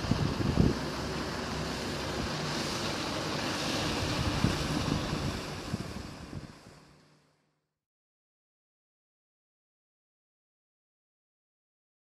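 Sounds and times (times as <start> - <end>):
wind buffeting microphone: 0.0 - 6.7
wind and waves rushing: 0.0 - 7.0.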